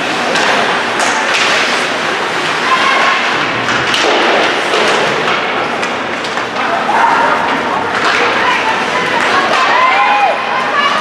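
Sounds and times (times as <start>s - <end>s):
sticks knocking puck: 2.9s - 6.8s.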